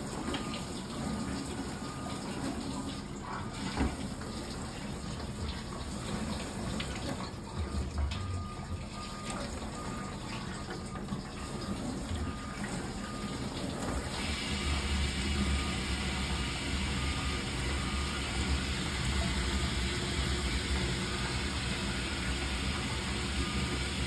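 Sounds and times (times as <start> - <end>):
wash pump humming: 0.0 - 24.0
water filling dishwasher: 0.0 - 24.0.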